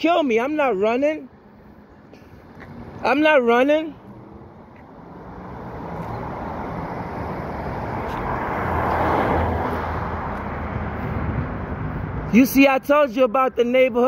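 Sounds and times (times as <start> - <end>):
car driving past: 4.0 - 12.3.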